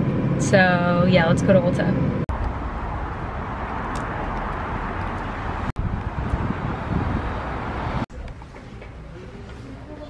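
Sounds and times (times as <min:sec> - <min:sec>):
distant traffic: 0:00.0 - 0:10.0
wind buffeting microphone: 0:01.3 - 0:08.3.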